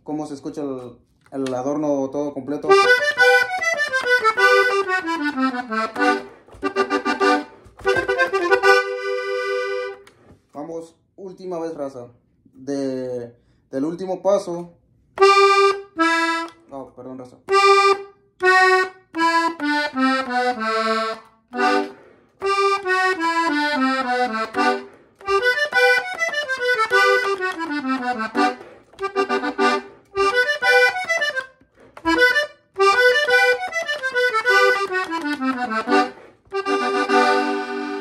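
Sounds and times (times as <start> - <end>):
button accordion playing quick notes: 2.7 - 10.2, 15.2 - 16.6, 17.5 - 38.0.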